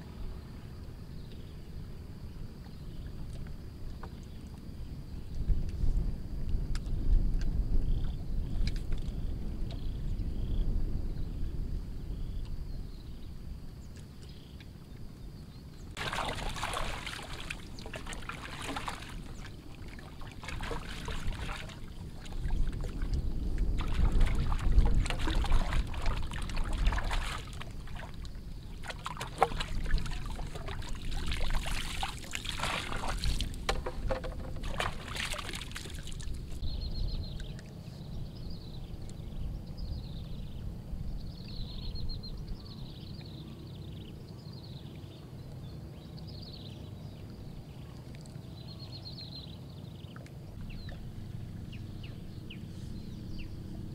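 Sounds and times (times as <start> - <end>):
water splashing and sloshing: 15.8 - 36.7.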